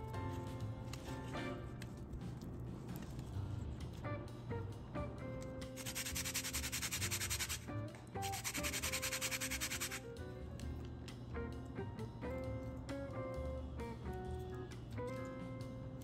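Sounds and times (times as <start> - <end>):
background music: 0.0 - 16.0
fast rhythmic rasping: 5.8 - 10.1.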